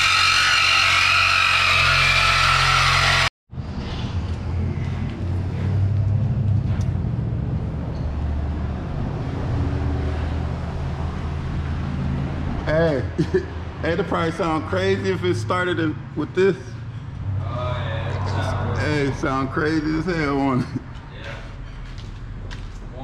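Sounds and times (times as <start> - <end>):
reciprocating saw cutting metal pipe: 0.0 - 3.3.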